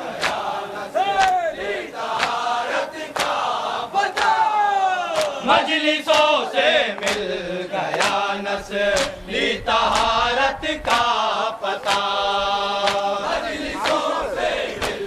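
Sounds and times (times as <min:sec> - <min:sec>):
men chanting a lament: 0:00.0 - 0:15.0
hand slaps on chest: 0:02.2 - 0:02.4, 0:03.2 - 0:03.4, 0:05.2 - 0:05.4, 0:08.0 - 0:08.2, 0:11.8 - 0:12.1, 0:12.8 - 0:13.1.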